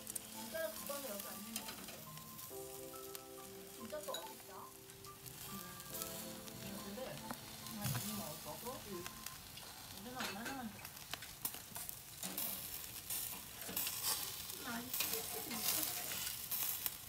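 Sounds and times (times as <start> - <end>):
patties sizzling on grill: 0.0 - 17.0
metal tongs clicking on grate: 0.1 - 2.2, 9.5 - 17.0.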